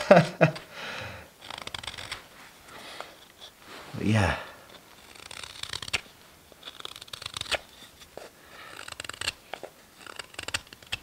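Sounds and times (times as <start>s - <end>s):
knife carving wood: 0.3s - 0.7s, 1.3s - 3.6s, 4.5s - 11.0s.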